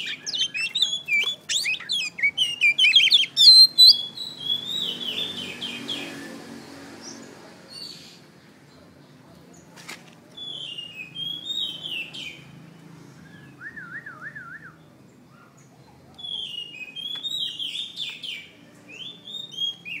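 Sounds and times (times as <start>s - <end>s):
bird singing whistled notes: 0.0s - 6.3s, 10.4s - 12.4s, 13.2s - 14.9s, 16.2s - 20.0s.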